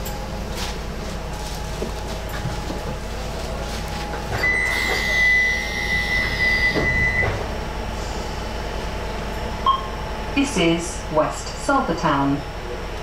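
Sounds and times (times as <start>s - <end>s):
steady high warning tone: 0.0s - 12.6s
train low hum: 0.0s - 13.0s
sliding doors hissing shut: 4.3s - 8.3s.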